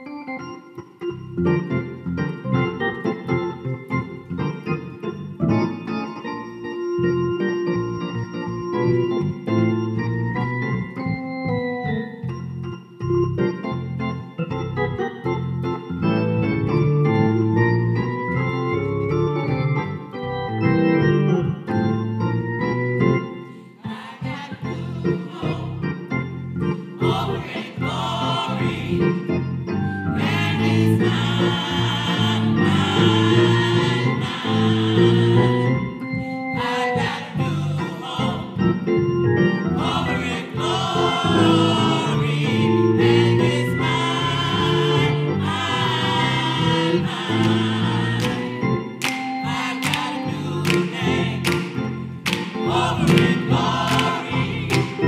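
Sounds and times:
organ playing sustained chords: 0.0 - 55.0
church choir singing: 15.9 - 55.0.

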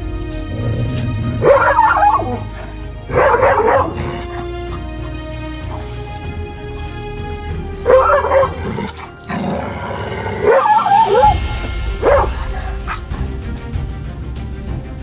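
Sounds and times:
background music: 0.0 - 15.0
dog crying: 1.4 - 2.4, 10.4 - 11.4.

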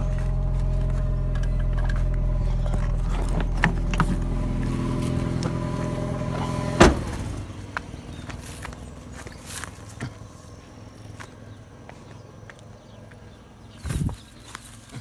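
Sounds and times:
car engine low hum: 0.0 - 15.0
loud thump: 6.7 - 7.3.

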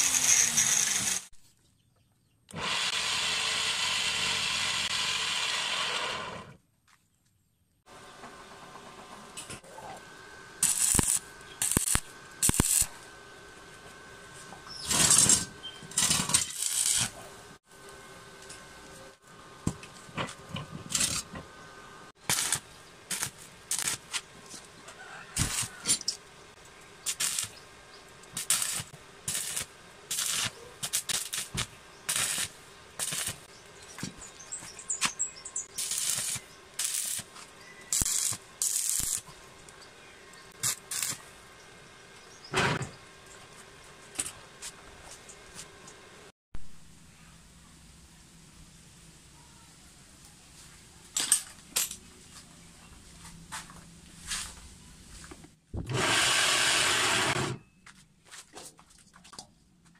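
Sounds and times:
arc welding crackling hiss: 0.0 - 1.3, 10.6 - 13.2, 14.3 - 18.0, 22.2 - 24.3, 25.4 - 26.2, 27.0 - 27.6, 28.2 - 39.7, 40.3 - 41.5.

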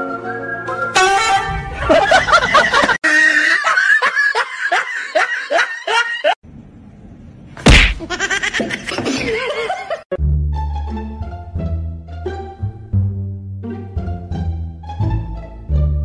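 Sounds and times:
laughter-like calls: 1.7 - 6.4
sharp smack: 7.6 - 8.1.

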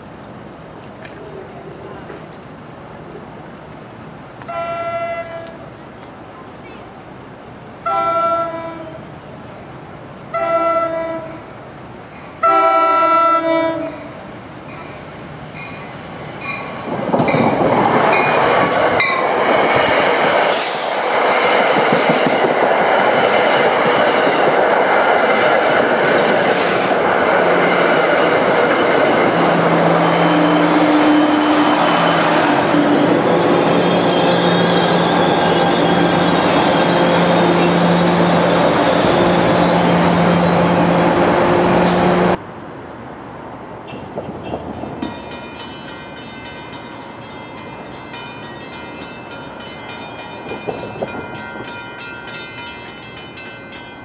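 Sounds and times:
train coaches rumbling and clattering: 0.0 - 7.7, 13.8 - 42.4, 43.4 - 54.0
train horn blasts: 4.4 - 5.6, 7.8 - 9.1, 10.3 - 11.4, 12.4 - 14.2, 29.4 - 32.1
locomotive engine: 24.8 - 42.4
wheel and brake squeal: 29.5 - 32.4, 33.2 - 41.1.

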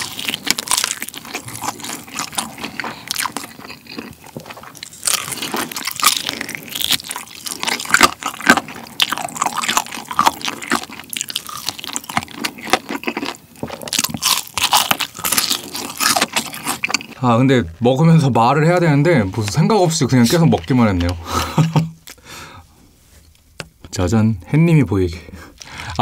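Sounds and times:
wet chewing: 0.0 - 17.2
crunching fried chicken: 0.0 - 17.8.

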